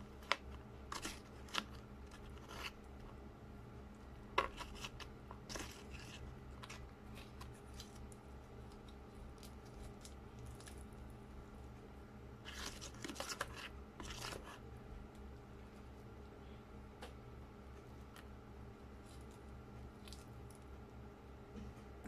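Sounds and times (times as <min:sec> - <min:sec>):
low steady hum: 0:00.0 - 0:22.0
metal spoon scraping foil tray: 0:12.5 - 0:14.6.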